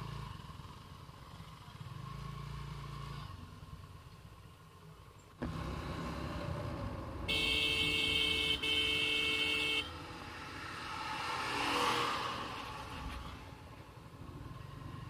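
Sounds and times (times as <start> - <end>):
motorcycle riding: 0.0 - 15.0
road noise: 0.0 - 15.0
vehicle horn blast: 7.3 - 10.0.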